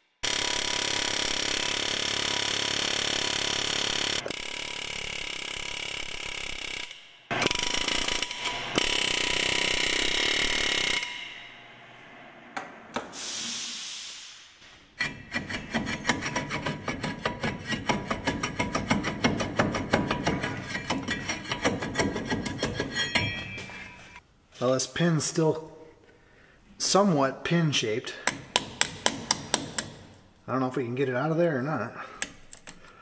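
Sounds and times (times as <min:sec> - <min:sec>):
air impact wrench hammering: 0:00.2 - 0:11.8, 0:14.9 - 0:24.2, 0:28.2 - 0:30.2
rusty metal scraping: 0:14.9 - 0:24.2.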